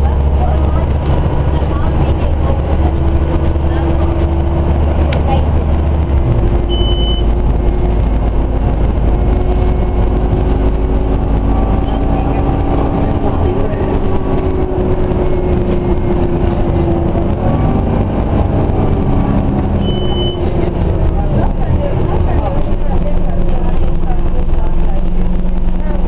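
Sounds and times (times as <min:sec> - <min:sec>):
bus engine drone with whine: 0:00.0 - 0:26.0
short high beep: 0:06.7 - 0:07.3, 0:19.8 - 0:20.4.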